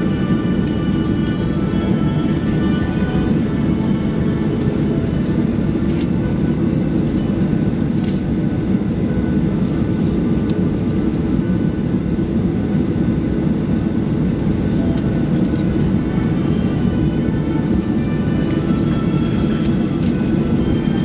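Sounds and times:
faint whine: 0:00.0 - 0:21.0
jet engine rumble in cabin: 0:00.0 - 0:21.0.

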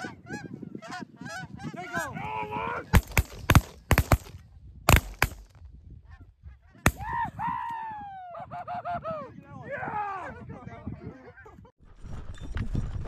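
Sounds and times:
shotgun blasts: 0:02.9 - 0:05.6.

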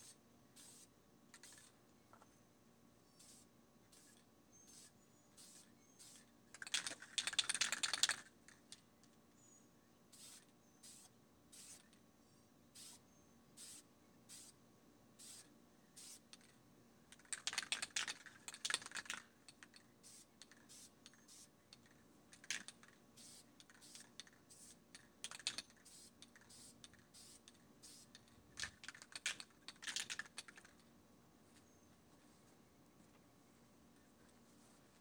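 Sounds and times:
spray-paint can clicking and hissing: 0:00.6 - 0:01.7, 0:04.0 - 0:08.2, 0:20.1 - 0:21.5, 0:22.6 - 0:28.2.

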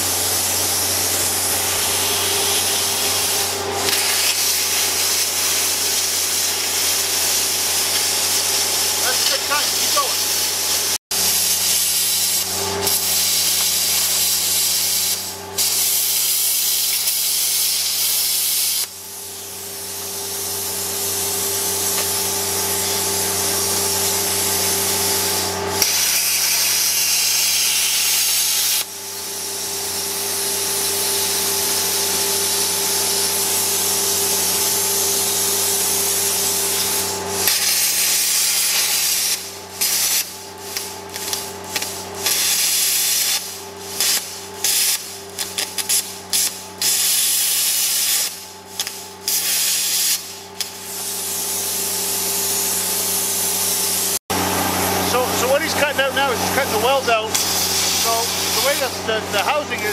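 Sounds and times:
plasma cutter hissing: 0:00.0 - 0:59.9
steady hum: 0:54.1 - 0:59.9.

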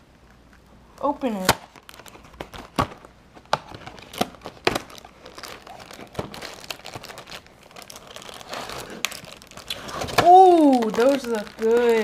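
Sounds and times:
cardboard box tearing and crinkling: 0:03.8 - 0:12.0.

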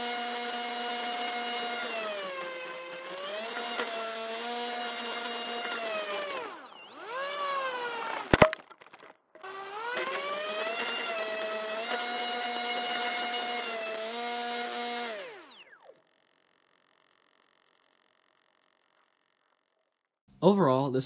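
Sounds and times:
propeller motor whine: 0:00.0 - 0:08.5, 0:09.4 - 0:19.4.

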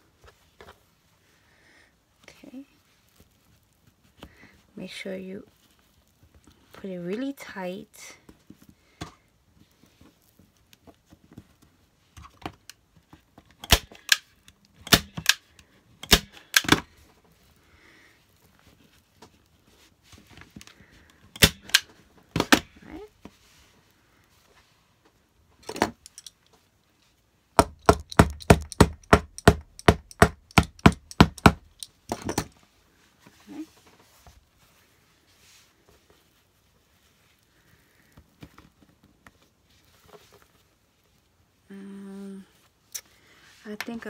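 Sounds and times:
staple gun shots into wood: 0:13.6 - 0:14.2, 0:14.9 - 0:15.4, 0:16.0 - 0:16.8, 0:21.4 - 0:21.8, 0:27.6 - 0:32.5.

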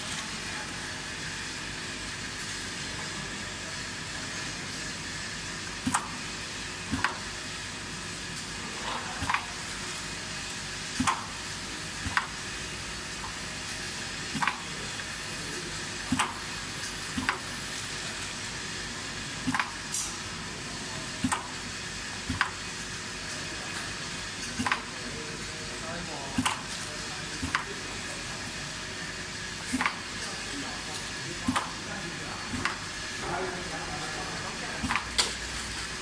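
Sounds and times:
pneumatic actuators clacking: 0:26.4 - 0:26.8, 0:34.8 - 0:35.4.

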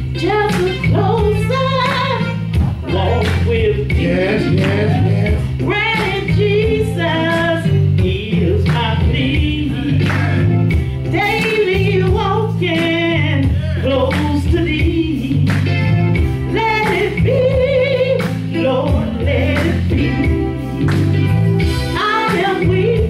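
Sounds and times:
woman singing gospel: 0:00.0 - 0:21.2, 0:21.8 - 0:23.0
bass guitar: 0:00.0 - 0:23.0
drum beat: 0:01.2 - 0:13.0
man singing: 0:02.8 - 0:05.5.

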